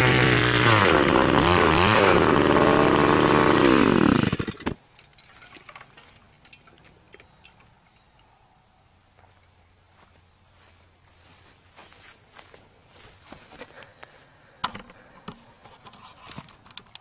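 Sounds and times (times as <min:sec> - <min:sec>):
cultivator engine revving: 0:00.0 - 0:04.8
faint footsteps: 0:09.0 - 0:15.8.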